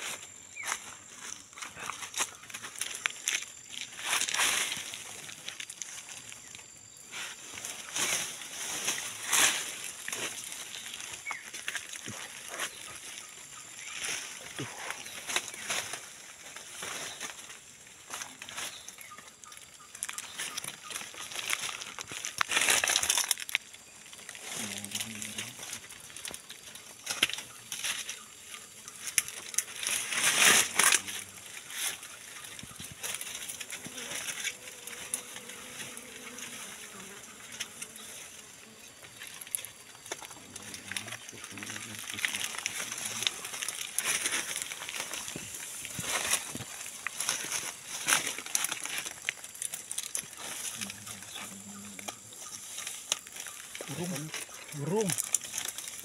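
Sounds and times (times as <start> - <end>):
leaves and twigs rustling: 0.0 - 56.0.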